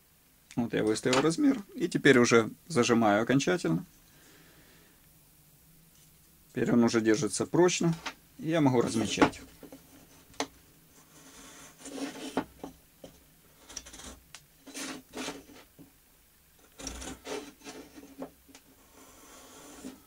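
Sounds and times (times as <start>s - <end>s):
gauge scraping wood: 11.0s - 12.7s, 13.6s - 15.8s, 16.6s - 20.0s.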